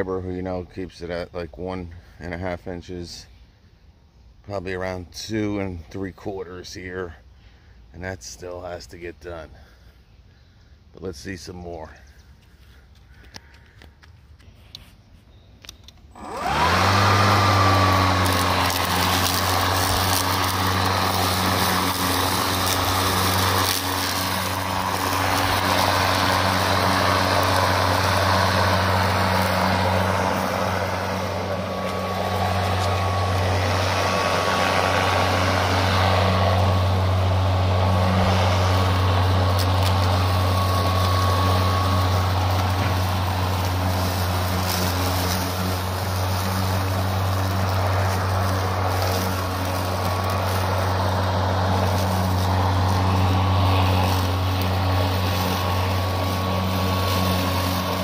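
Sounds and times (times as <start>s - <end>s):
lawn mower running: 15.6s - 58.0s.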